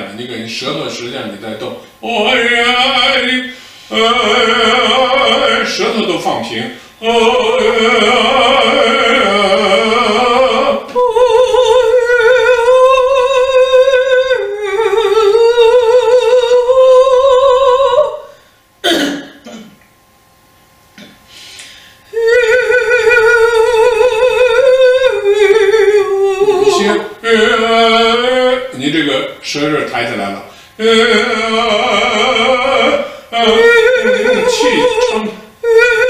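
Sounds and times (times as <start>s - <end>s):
woman singing wordless melody: 2.0s - 6.0s, 7.0s - 18.3s, 22.1s - 28.7s, 30.8s - 36.0s
breath or click: 21.4s - 22.0s.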